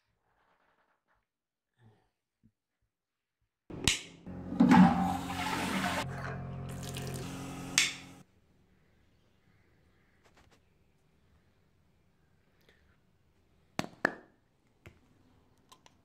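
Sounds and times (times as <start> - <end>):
steady humming tone: 3.7 - 8.2
tap water running into sink: 4.3 - 8.2.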